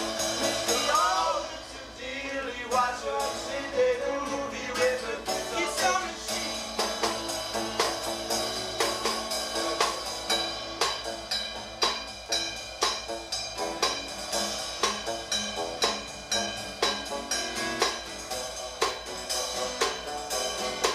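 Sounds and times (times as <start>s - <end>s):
snare drum beat: 0.0s - 1.5s, 4.8s - 20.9s
acoustic guitar: 0.0s - 20.9s
person singing: 0.5s - 7.2s.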